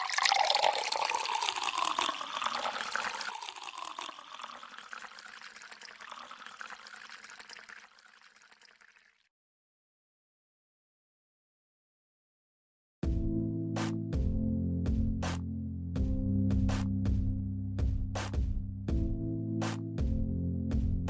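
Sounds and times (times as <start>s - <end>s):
water pouring into a glass: 0.0s - 9.3s.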